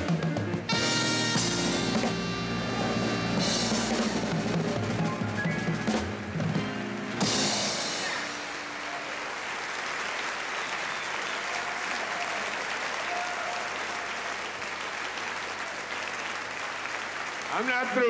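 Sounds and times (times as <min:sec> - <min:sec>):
audience applauding: 0:07.0 - 0:18.0.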